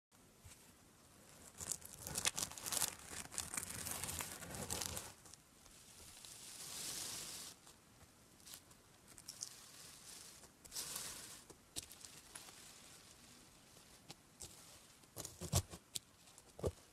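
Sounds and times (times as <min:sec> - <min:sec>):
soft hiss: 0:00.2 - 0:16.9.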